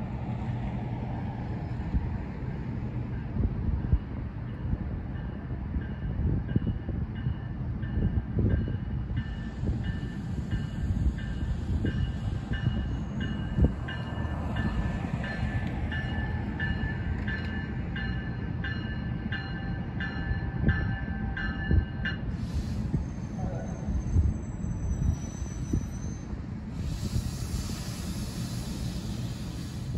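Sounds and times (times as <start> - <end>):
train rumble: 0.0 - 29.9
railroad crossing bell ringing: 3.1 - 22.5.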